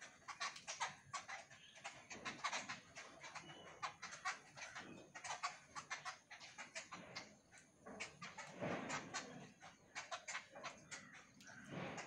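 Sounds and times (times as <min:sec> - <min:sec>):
birds making harsh squeaky calls: 0:00.0 - 0:12.0.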